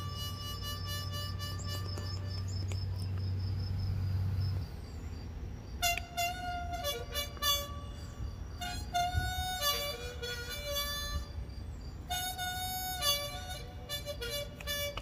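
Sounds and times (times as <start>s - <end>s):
harmonica playing: 0.0s - 2.7s, 5.8s - 15.0s.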